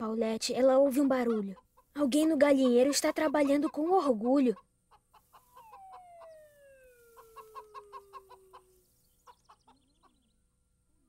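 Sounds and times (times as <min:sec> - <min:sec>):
cartoon hen clucking: 0:02.4 - 0:09.7.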